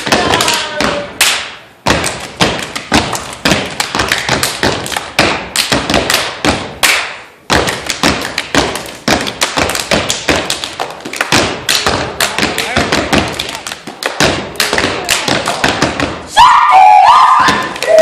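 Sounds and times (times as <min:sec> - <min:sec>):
hand claps: 0:00.0 - 0:16.2
boot stomps: 0:01.8 - 0:06.8, 0:07.5 - 0:13.4.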